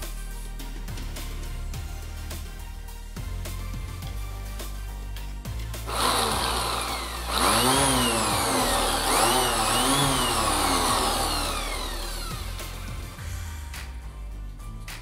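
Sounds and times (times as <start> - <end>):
orbital sander running: 5.9 - 13.2.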